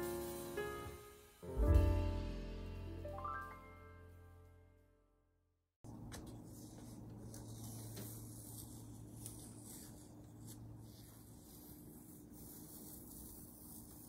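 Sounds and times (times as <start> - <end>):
fingers rubbing tape on paper: 6.3 - 14.0.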